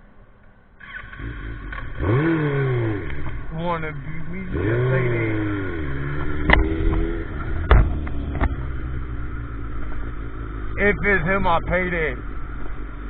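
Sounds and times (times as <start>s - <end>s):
motorcycle engine revving: 0.8s - 13.0s
sharp knocks: 6.2s - 8.6s.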